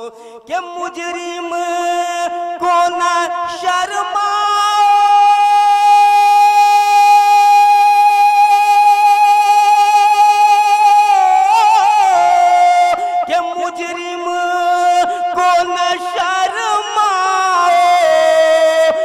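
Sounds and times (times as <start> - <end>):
person singing unaccompanied: 0.0 - 19.0.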